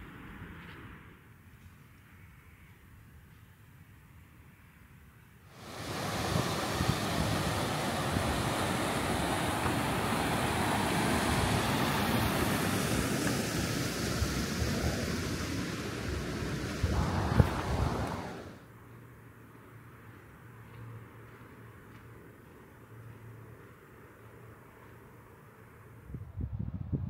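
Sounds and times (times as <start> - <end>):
steady rushing noise: 5.5 - 18.7.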